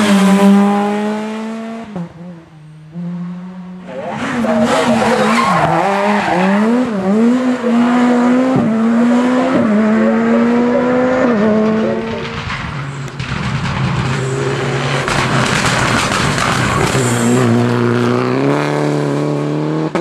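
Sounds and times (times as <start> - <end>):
rally car engine revving: 0.0 - 20.0
tyre and gravel noise: 10.1 - 17.9.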